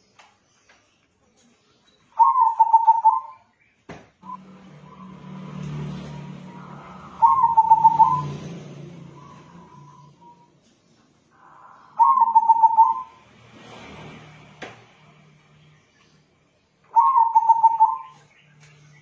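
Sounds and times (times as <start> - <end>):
dove cooing: 2.2 - 3.4, 5.8 - 10.4, 11.3 - 13.2, 16.9 - 18.2.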